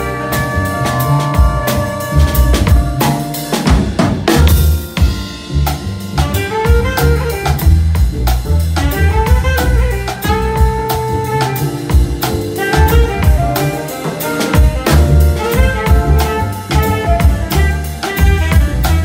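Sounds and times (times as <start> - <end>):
drum kit with ride cymbal: 0.0 - 19.0
piano: 0.0 - 19.0
saxophone melody: 0.0 - 19.0
upright bass walking: 0.0 - 19.0.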